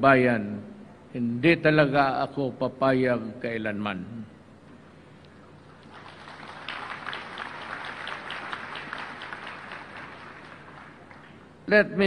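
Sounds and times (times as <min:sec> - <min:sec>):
large audience applauding: 0:05.8 - 0:11.5.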